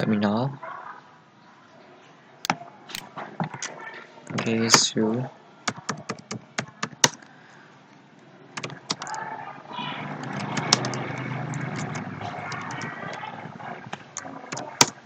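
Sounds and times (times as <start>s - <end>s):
steady low background noise: 0.0s - 15.0s
keyboard keys clicking: 5.7s - 7.3s, 8.6s - 9.2s, 10.1s - 13.2s, 13.9s - 15.0s.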